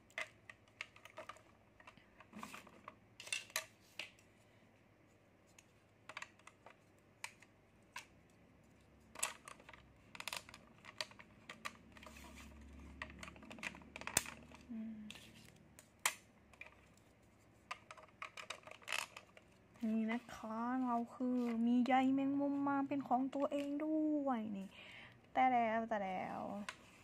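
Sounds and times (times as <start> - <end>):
plastic toy parts clicking: 0.0 - 4.2, 5.5 - 8.4, 9.0 - 17.0, 17.7 - 19.5.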